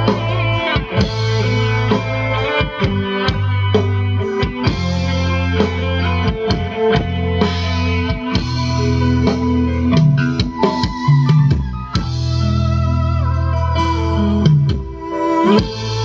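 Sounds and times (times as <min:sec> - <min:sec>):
bass notes: 0:00.0 - 0:16.0
pitched melody lines: 0:04.5 - 0:16.0.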